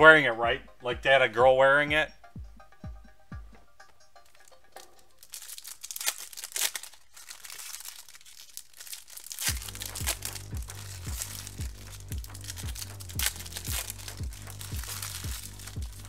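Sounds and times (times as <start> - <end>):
background music with bass beat: 0.0 - 5.0, 9.5 - 16.0
card wrappers crinkling and tearing: 4.2 - 16.0.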